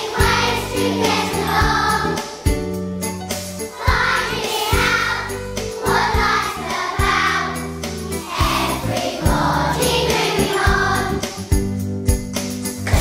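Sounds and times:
children singing in unison: 0:00.0 - 0:02.3, 0:03.7 - 0:11.4
instrumental accompaniment with beat: 0:00.0 - 0:13.0.

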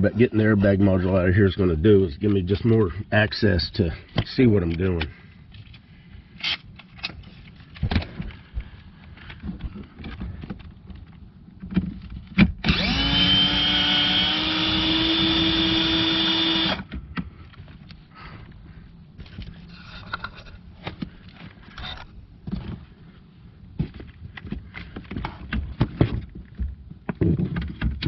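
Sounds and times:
power tool whining: 0:12.6 - 0:16.9.

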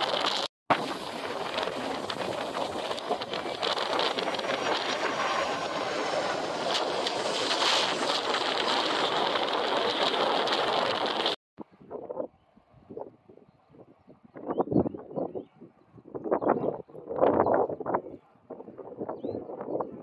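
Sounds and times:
jet engines rushing: 0:00.0 - 0:11.4.

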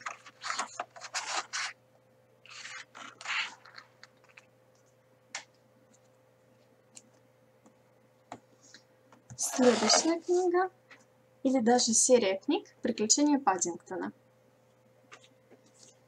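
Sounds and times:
book pages rustling: 0:00.0 - 0:01.8, 0:02.5 - 0:04.5, 0:15.1 - 0:16.0.

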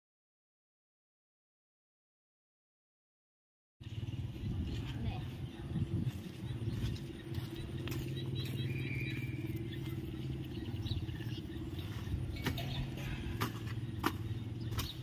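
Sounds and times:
small motorbike engine idling: 0:03.8 - 0:15.0.

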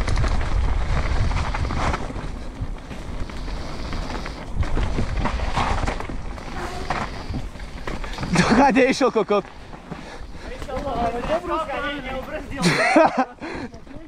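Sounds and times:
bike knocks and rattles: 0:00.0 - 0:13.1
bike tyres on dirt: 0:00.0 - 0:14.0
wind buffeting microphone: 0:00.0 - 0:14.0.

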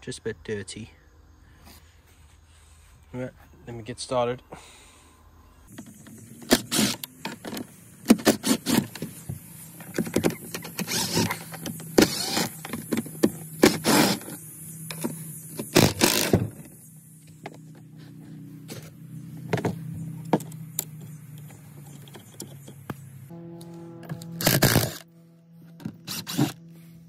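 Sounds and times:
cordless driver whirring: 0:06.4 - 0:07.4, 0:10.6 - 0:12.7, 0:24.1 - 0:25.0, 0:25.8 - 0:26.6.

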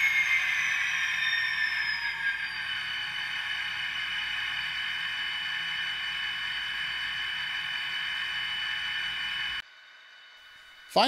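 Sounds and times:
electronic engine drone: 0:00.0 - 0:11.0.

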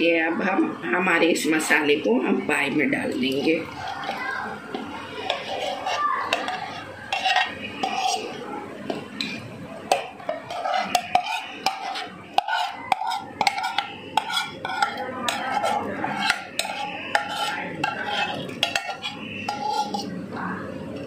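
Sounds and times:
metal ladle scraping pan: 0:03.2 - 0:08.4, 0:09.2 - 0:20.2.

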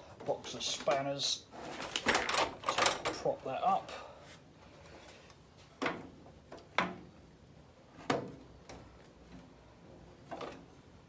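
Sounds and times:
metal parts knocking: 0:01.7 - 0:03.3.

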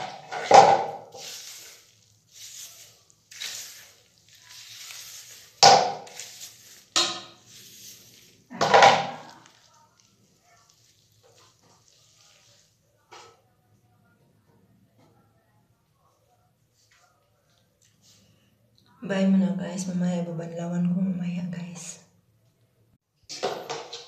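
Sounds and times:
hands working hair: 0:00.0 - 0:12.7
comb through wet hair: 0:01.0 - 0:13.0.

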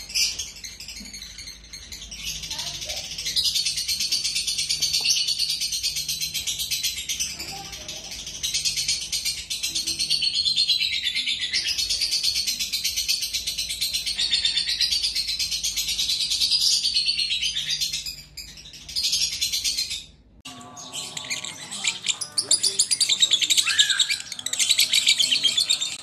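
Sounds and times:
different bird sounds: 0:00.0 - 0:26.0
lovebird chattering: 0:20.6 - 0:26.0.

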